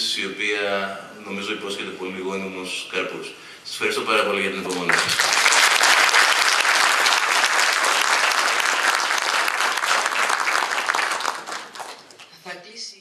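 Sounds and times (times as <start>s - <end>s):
audience applauding: 4.7s - 12.3s.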